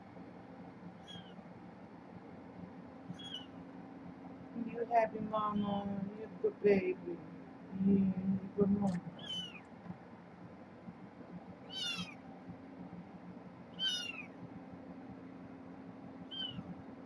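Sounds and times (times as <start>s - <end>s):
faint steady hum: 0.0s - 17.0s
kitten mewing: 1.0s - 1.4s, 3.1s - 3.5s, 9.2s - 9.6s, 11.7s - 12.2s, 13.8s - 14.3s, 16.3s - 16.6s.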